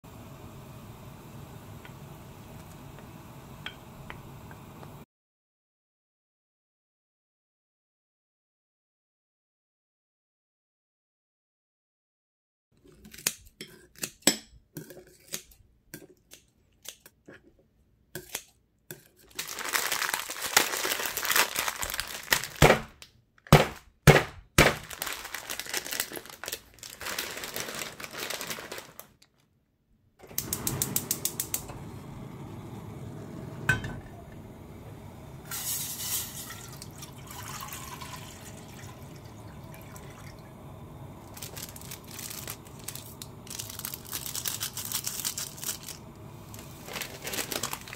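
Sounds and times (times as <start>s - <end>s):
steady hiss over pot: 0.1s - 5.0s, 30.2s - 47.9s
plastic wrapper crinkling: 19.2s - 29.5s, 41.2s - 47.9s
dried flakes rattling: 19.3s - 22.7s, 24.8s - 29.2s, 41.2s - 47.9s.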